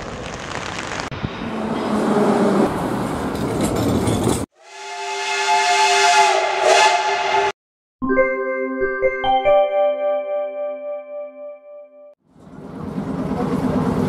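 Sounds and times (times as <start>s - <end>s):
metro train rumbling: 0.0s - 7.6s, 12.3s - 14.0s
steam locomotive whistle chord: 4.6s - 7.6s
electronic jingle with keyboard: 8.0s - 12.1s.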